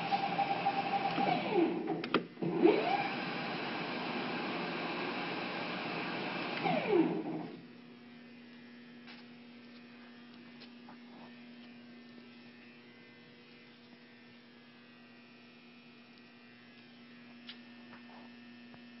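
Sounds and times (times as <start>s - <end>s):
faint electrical hum: 7.2s - 19.0s.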